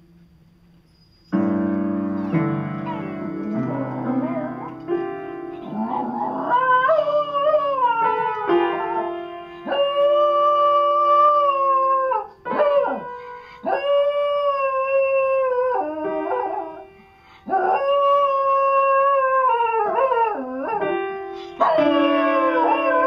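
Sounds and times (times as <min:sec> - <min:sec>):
piano notes: 0:00.0 - 0:23.0
dog howling: 0:05.6 - 0:16.8, 0:21.6 - 0:23.0.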